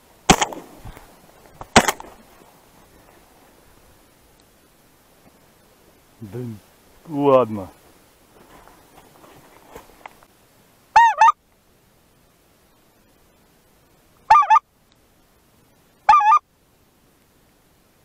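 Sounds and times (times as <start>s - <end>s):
two-note goose honks: 16.1s - 16.4s.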